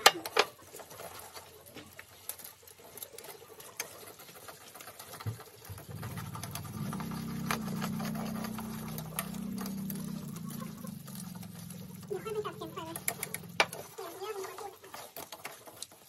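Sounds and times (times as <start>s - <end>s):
utensils scraping a wok: 0.0s - 16.0s
low droning hum: 5.8s - 13.8s.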